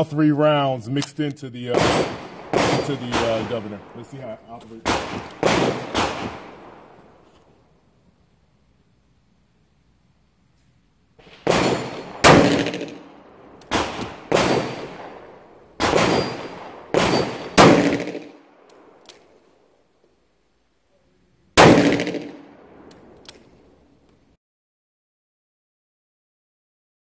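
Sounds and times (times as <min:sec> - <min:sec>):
revolver gunshots with echo: 0:01.6 - 0:07.2, 0:11.2 - 0:19.0, 0:21.6 - 0:23.2.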